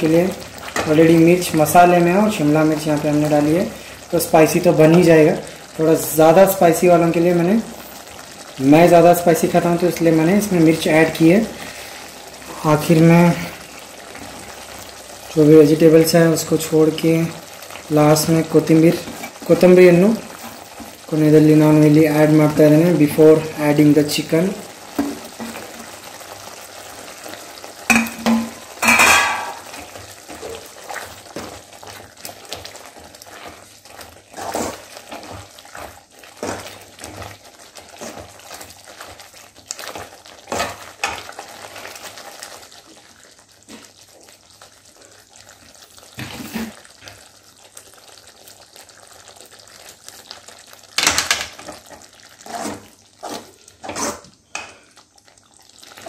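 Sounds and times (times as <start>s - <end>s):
gravy sizzling: 0.0s - 56.0s
ladle scraping and knocking pan: 27.9s - 29.7s.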